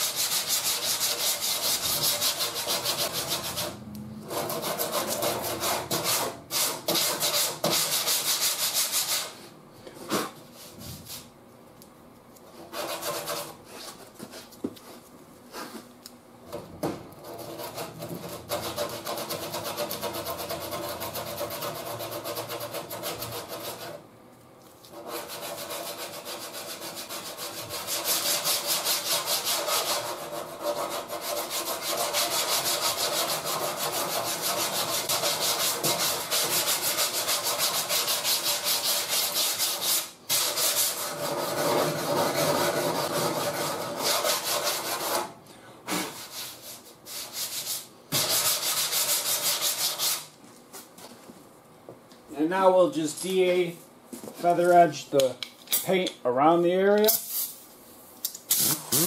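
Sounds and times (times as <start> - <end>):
sanding block rasping: 0.0 - 9.4, 12.7 - 13.6, 17.2 - 24.0, 24.9 - 45.3, 46.2 - 50.3.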